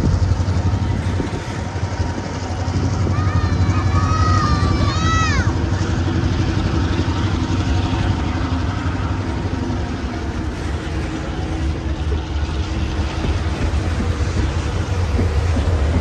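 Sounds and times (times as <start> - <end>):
diesel locomotive rumbling: 0.0 - 16.0.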